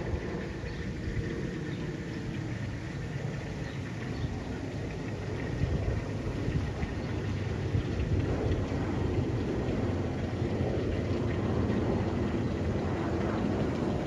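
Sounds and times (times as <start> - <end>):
jet engines overhead rumbling: 0.0 - 14.0.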